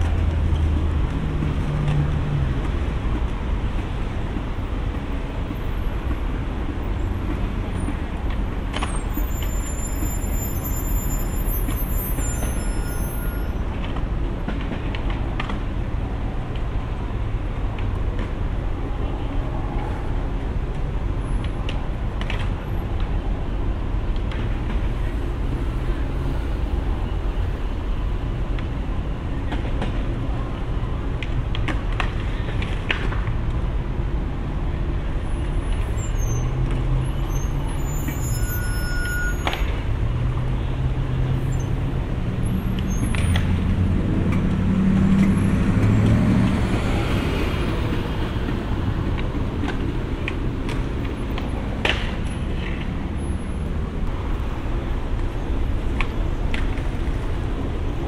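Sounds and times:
street traffic: 0.0 - 58.0
streetcar rolling on rails: 0.0 - 58.0
low vehicle drone: 39.8 - 58.0.

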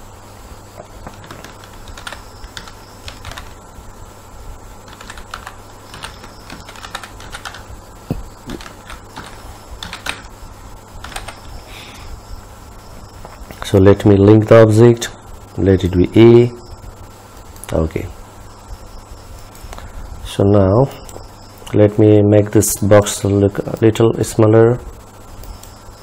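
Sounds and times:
steady low hum: 0.0 - 26.0
typing on computer keyboard: 1.0 - 3.6, 4.9 - 7.7, 8.5 - 10.3, 11.0 - 11.5.

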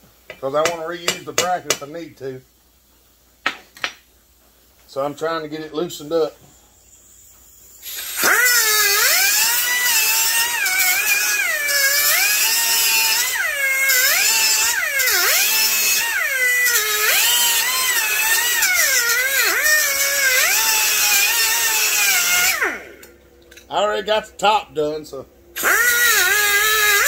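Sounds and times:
angle grinder cutting metal: 7.8 - 23.1, 25.6 - 27.0.

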